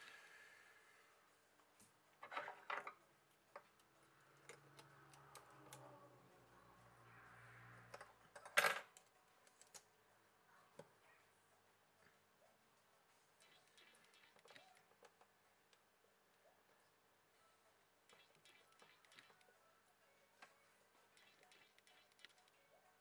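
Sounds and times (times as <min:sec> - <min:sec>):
small parts clattering on desk: 0:02.2 - 0:03.0, 0:08.0 - 0:09.0
tweezers clicking and tapping: 0:03.3 - 0:06.0, 0:08.9 - 0:09.9.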